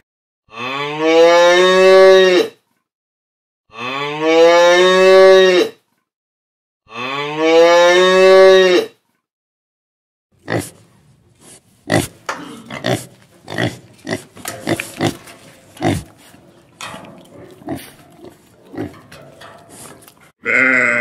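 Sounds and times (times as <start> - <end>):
pig grunting: 10.4 - 21.0
sheep bleating: 20.4 - 21.0.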